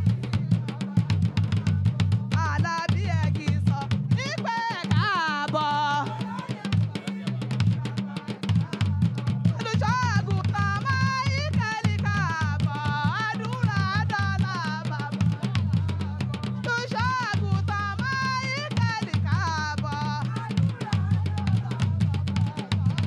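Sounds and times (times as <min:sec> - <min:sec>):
drum and percussion beat: 0:00.0 - 0:23.0
woman singing into microphone: 0:02.3 - 0:06.4, 0:09.6 - 0:15.2, 0:16.6 - 0:20.4.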